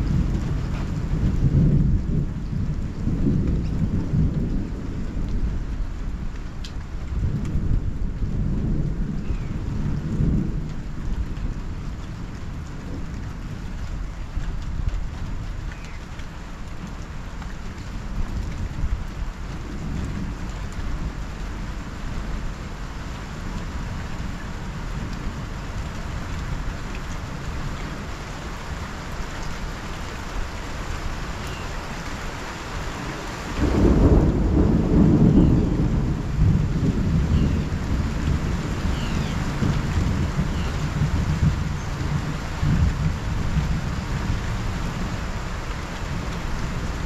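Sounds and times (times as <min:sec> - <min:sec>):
thunder rumbling: 0:00.0 - 0:15.7, 0:16.7 - 0:47.0
rain falling: 0:00.0 - 0:47.0
loud peal of thunder: 0:33.6 - 0:45.1.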